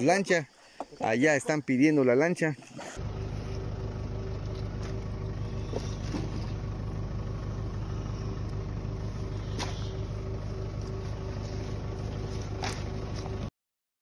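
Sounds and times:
motor droning: 2.9s - 13.5s.

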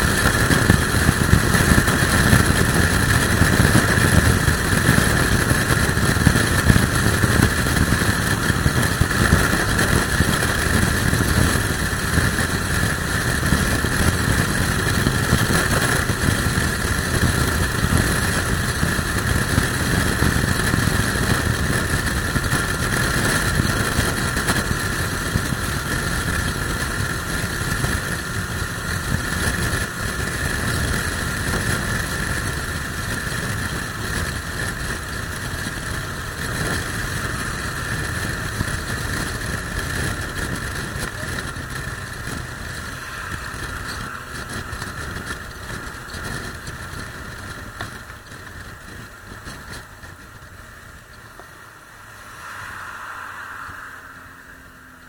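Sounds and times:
motorcycle engine: 0.0s - 55.0s
wind rush on microphone: 0.0s - 55.0s.

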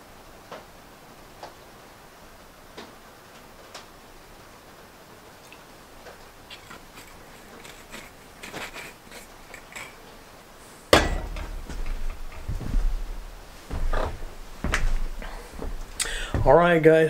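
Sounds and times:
low thudding: 10.9s - 17.0s
bottle knocking on metal can: 11.0s - 12.5s.

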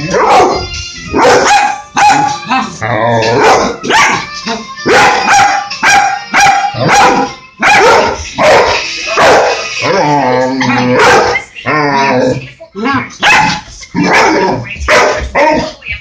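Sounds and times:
dog barking excitedly: 0.0s - 0.6s, 1.2s - 2.4s, 3.4s - 4.2s, 4.9s - 9.6s, 10.6s - 11.5s, 13.2s - 15.8s.

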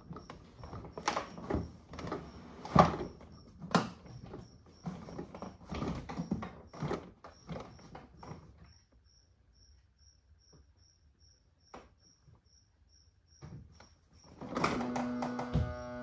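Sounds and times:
plastic toy car knocking and creaking: 0.0s - 8.8s, 13.4s - 16.0s.

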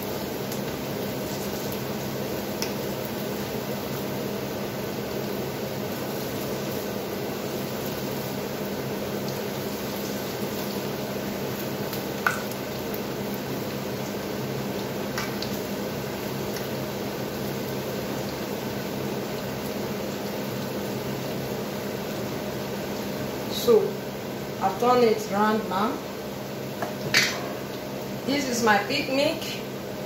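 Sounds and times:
fritters sizzling in oil: 0.0s - 30.0s
fork clinking against pan: 27.1s - 27.6s.

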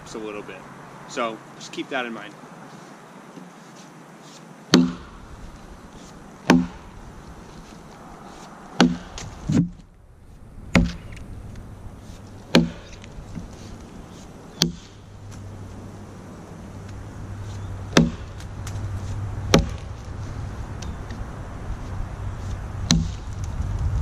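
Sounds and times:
axe chopping log: 4.7s - 5.2s, 6.4s - 7.0s, 8.8s - 9.8s, 10.7s - 11.1s, 12.5s - 13.5s, 14.6s - 15.0s, 17.9s - 18.8s, 19.5s - 20.0s, 22.8s - 23.3s.

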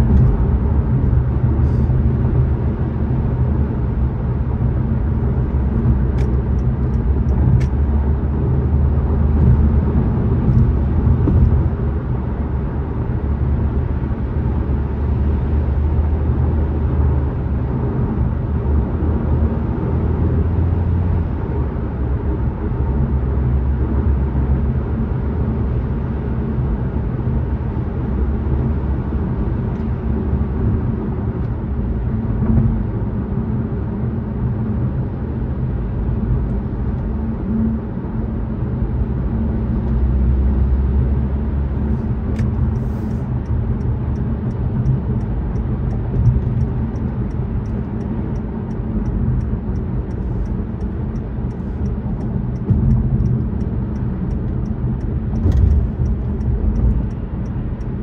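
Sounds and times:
car driving rumble: 0.0s - 58.0s
faint regular ticking: 43.4s - 58.0s.

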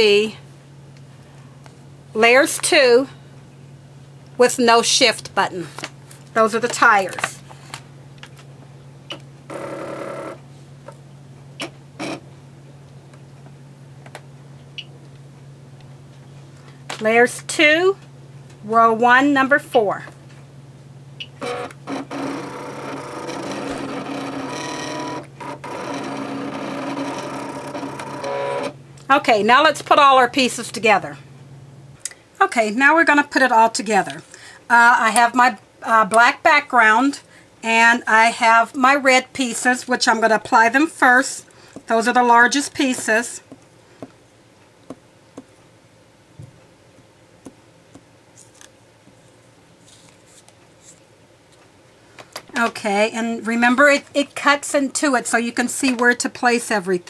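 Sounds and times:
cutting machine motors whirring: 21.4s - 28.8s.

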